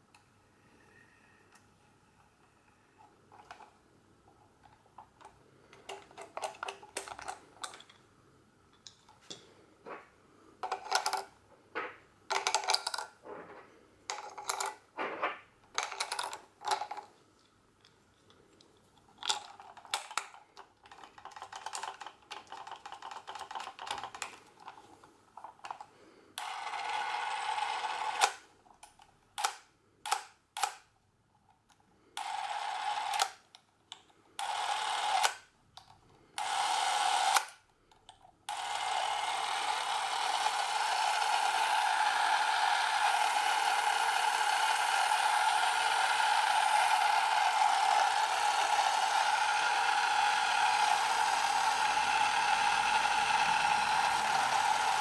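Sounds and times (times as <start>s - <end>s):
plastic clicks and clatter: 3.3s - 8.0s, 10.6s - 26.5s
camera motor whirring: 26.4s - 28.4s, 34.4s - 35.3s, 36.4s - 37.5s, 38.5s - 55.0s.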